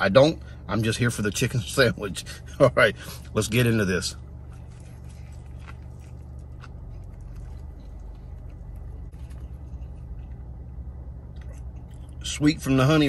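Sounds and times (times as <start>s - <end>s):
low rumble inside car: 0.0s - 13.0s
man chewing crunchy food: 4.2s - 12.3s.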